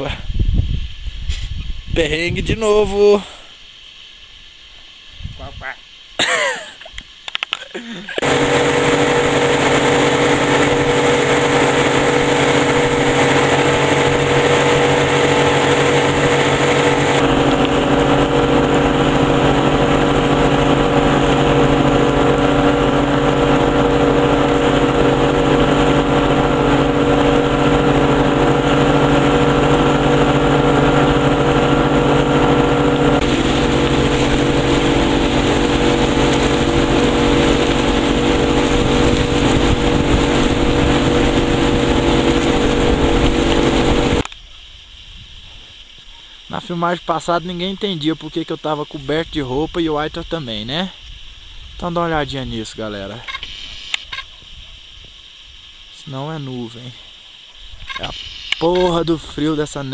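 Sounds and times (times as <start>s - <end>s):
water rushing in wake: 8.1s - 44.3s
boat motor running: 8.2s - 44.2s.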